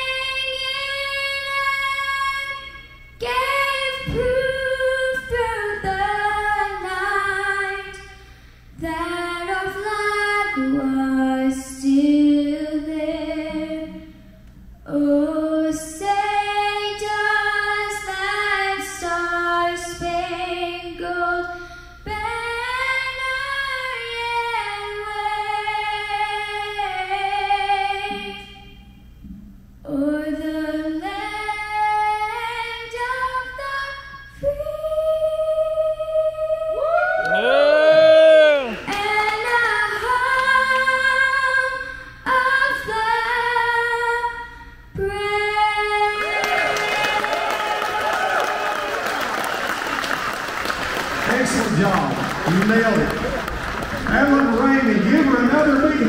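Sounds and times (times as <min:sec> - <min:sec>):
woman singing unaccompanied: 0:08.8 - 0:14.1, 0:14.9 - 0:28.7, 0:29.8 - 0:37.1.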